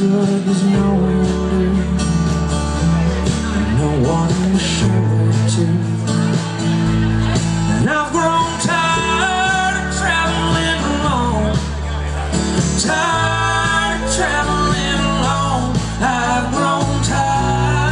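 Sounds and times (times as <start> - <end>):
country-rock band playing: 0.0 - 17.9
steady bass: 0.0 - 17.9
strummed acoustic guitar: 0.0 - 17.9.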